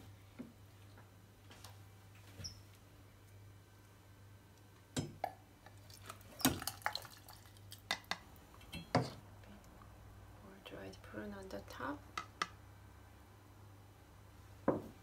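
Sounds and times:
broth dripping and splashing: 5.8 - 7.9.

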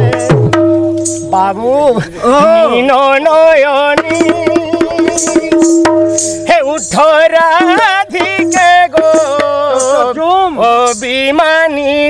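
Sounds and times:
hand drum strokes: 0.0 - 1.6, 4.0 - 10.2
man singing: 1.3 - 12.0.

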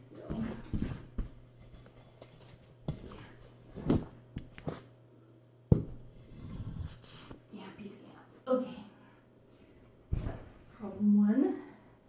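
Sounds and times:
knocks and thumps on floor: 5.7 - 6.0.

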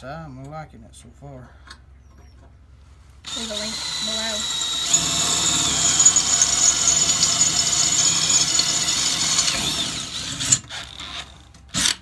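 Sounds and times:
drill whining through steel: 3.2 - 12.0.

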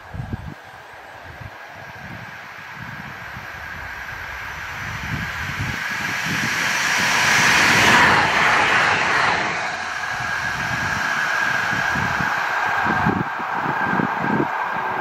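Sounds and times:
tram passing with rushing wheels: 0.0 - 15.0.

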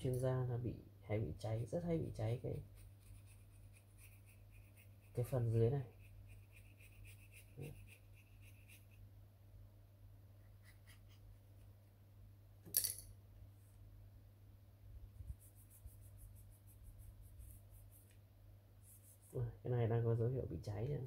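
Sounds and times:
low steady hum: 0.0 - 21.0
sharp clink: 12.7 - 13.1.

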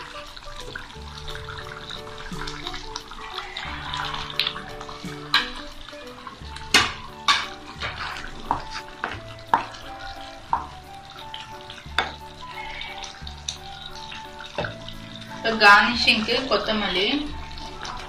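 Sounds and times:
spatula scraping and knocking pan: 6.6 - 10.7.

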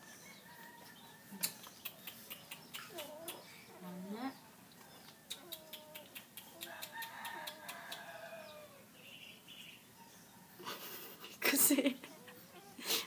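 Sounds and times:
puppies whining: 2.2 - 4.0, 4.9 - 6.6.

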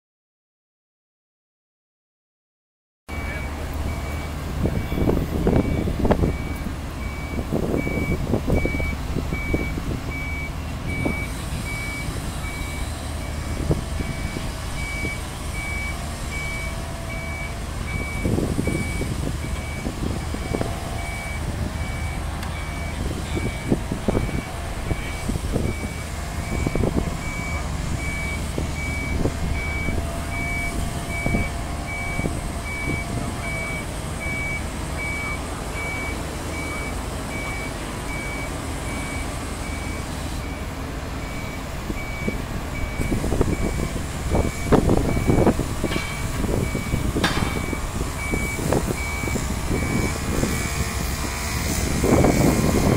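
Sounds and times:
backup alarm beeping: 3.1 - 40.6, 41.2 - 50.7
diesel engine running: 3.1 - 52.9
knocks: 47.2 - 47.7.

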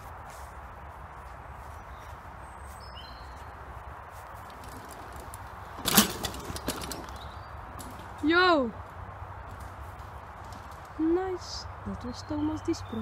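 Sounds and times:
bike clattering on loose dirt: 3.0 - 12.2.

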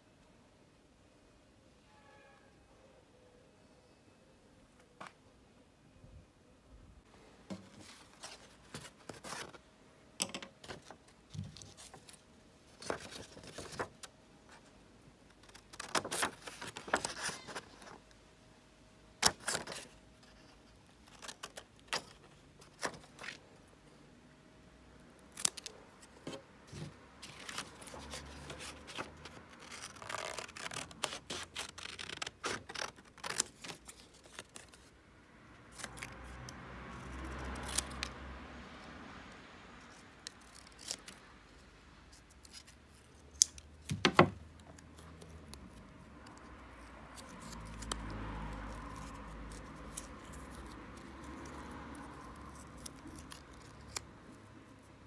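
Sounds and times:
card rustling: 7.5 - 9.7, 10.4 - 14.7, 15.3 - 18.0, 25.3 - 34.9.

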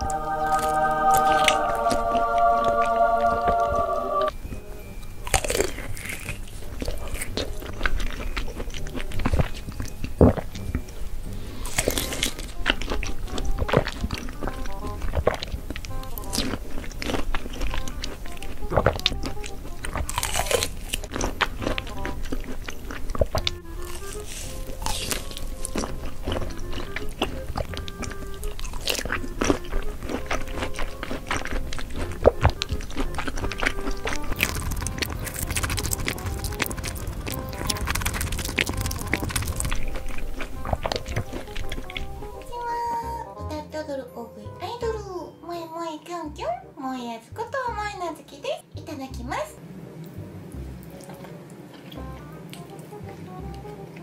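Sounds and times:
wet chewing with mouth clicks: 0.0 - 43.1, 50.0 - 54.0
juicy squelch: 0.0 - 43.2
soft background music: 0.0 - 54.0.

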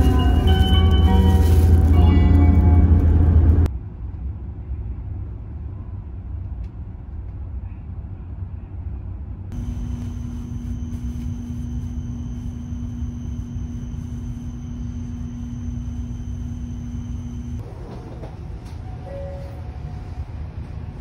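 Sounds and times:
background music: 0.0 - 3.7
train car rumbling: 0.0 - 21.0
steady hum: 9.5 - 18.6.

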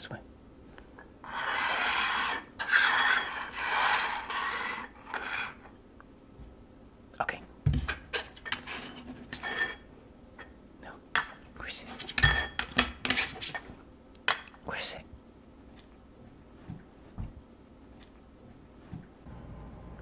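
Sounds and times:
metal tins scraping on tabletop: 1.2 - 5.8, 8.0 - 9.9.

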